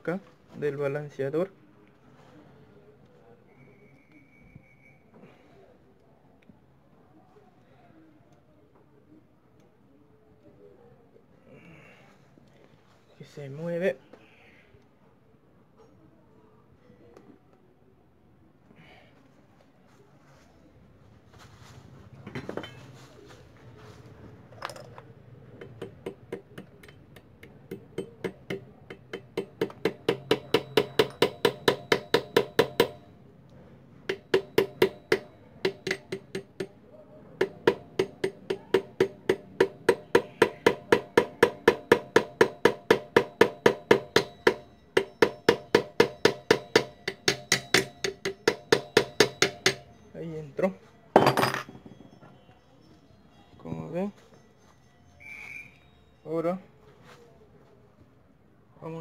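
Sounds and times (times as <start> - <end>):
hammer tapping on metal drift: 25.5 - 33.1, 34.0 - 36.8, 37.4 - 50.1.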